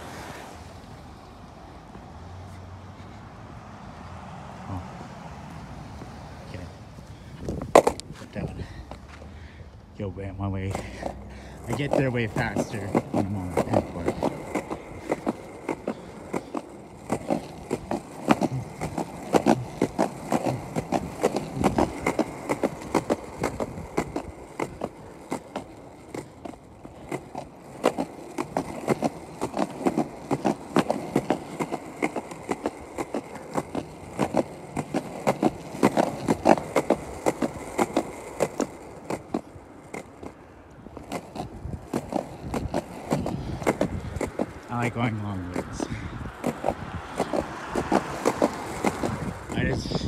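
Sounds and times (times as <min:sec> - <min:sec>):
skateboard wheels rolling: 0:00.0 - 0:50.0.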